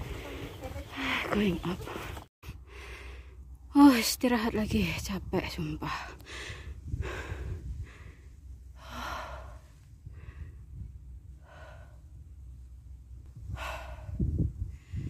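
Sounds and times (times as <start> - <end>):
person breathing heavily: 0.0 - 3.5, 6.1 - 12.2, 13.4 - 15.0
low steady rumble: 0.0 - 15.0.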